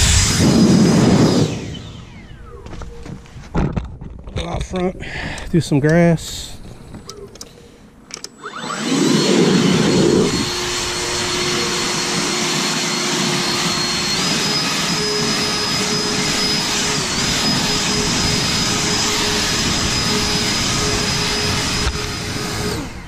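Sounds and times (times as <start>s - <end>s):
leaf blower running: 0.0s - 2.4s, 8.4s - 23.0s.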